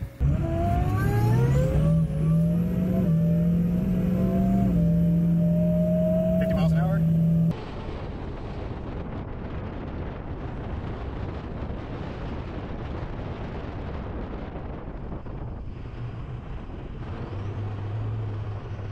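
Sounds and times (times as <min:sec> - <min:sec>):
low steady hum: 0:00.0 - 0:08.2
road rumble: 0:00.0 - 0:18.9
wind rushing over microphone: 0:00.0 - 0:18.9.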